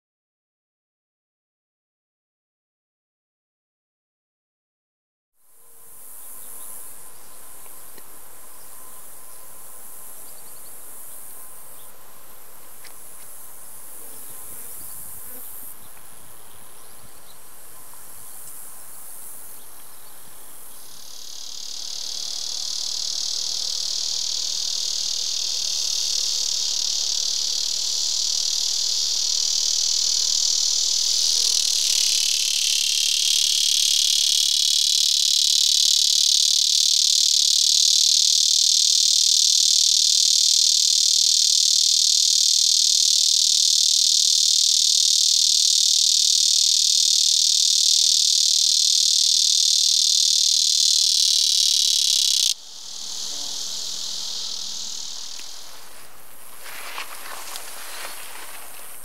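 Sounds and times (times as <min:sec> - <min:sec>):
high hiss of insects: 0:05.4 - 0:59.0
cicada buzzing: 0:05.5 - 0:59.0.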